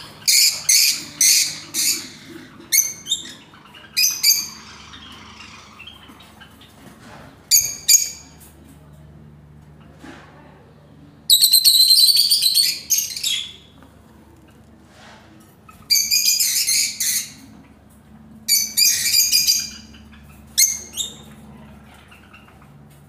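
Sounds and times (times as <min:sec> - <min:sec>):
lovebirds shrill chattering calls: 0:00.0 - 0:06.8, 0:11.3 - 0:13.7, 0:15.8 - 0:17.4, 0:18.5 - 0:21.4.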